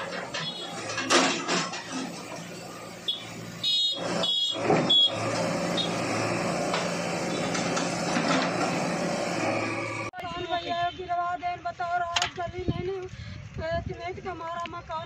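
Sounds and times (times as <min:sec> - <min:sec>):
diesel engine running: 0:00.0 - 0:10.2.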